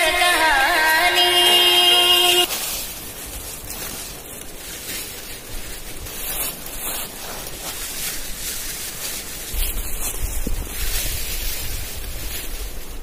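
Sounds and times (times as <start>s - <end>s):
dry leaves rustling and crackling: 0.0s - 13.0s
wind buffeting microphone: 5.4s - 13.0s.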